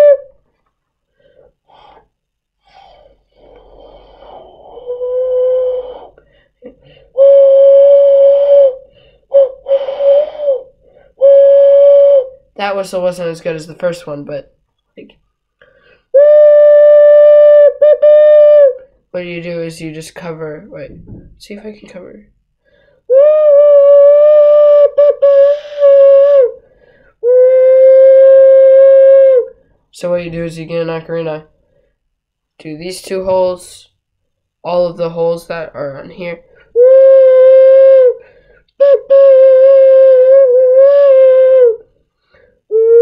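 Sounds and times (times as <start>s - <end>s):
ocarina held notes: 0.0s - 0.4s, 7.1s - 12.8s
person whistling like a train: 0.0s - 0.4s, 2.7s - 6.2s, 7.1s - 12.4s, 16.1s - 18.8s, 23.1s - 26.6s, 27.2s - 29.5s, 36.8s - 41.9s, 42.7s - 43.0s.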